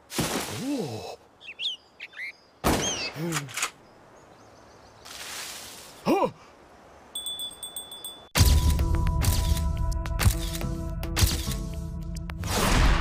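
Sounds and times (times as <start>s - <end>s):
high ringing tone: 7.2s - 8.4s.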